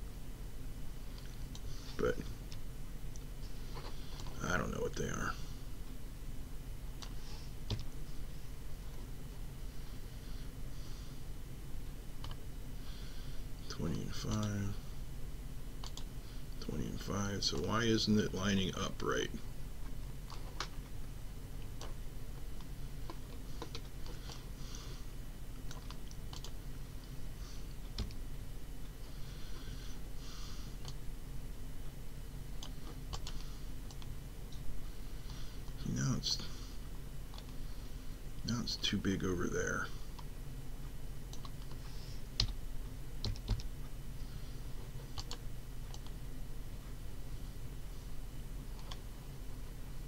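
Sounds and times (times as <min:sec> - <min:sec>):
low steady hum: 0:00.0 - 0:50.0
computer mouse clicks: 0:12.2 - 0:12.4, 0:15.8 - 0:16.1, 0:25.7 - 0:26.6, 0:32.6 - 0:34.1, 0:41.3 - 0:41.8, 0:43.2 - 0:43.7, 0:45.1 - 0:46.2, 0:48.7 - 0:49.0.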